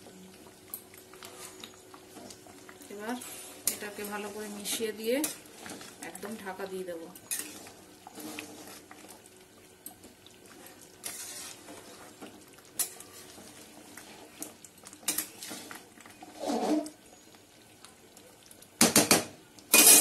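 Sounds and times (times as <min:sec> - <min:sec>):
spoon stirring thick curry: 0:10.5 - 0:16.2
spoon scraping metal pan: 0:11.0 - 0:11.7, 0:16.2 - 0:17.0.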